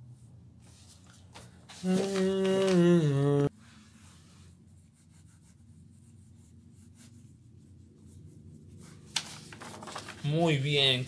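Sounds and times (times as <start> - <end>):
low background hum: 0.0 - 11.0
paper rustling: 0.6 - 2.9, 8.8 - 11.0
pencil scratching on paper: 3.9 - 9.1.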